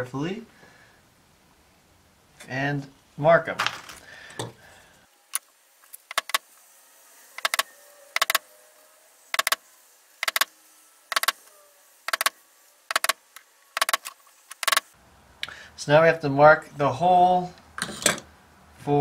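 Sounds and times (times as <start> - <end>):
center punch clicking on metal: 6.1 - 6.4, 10.2 - 10.5, 11.1 - 11.3, 12.9 - 13.2.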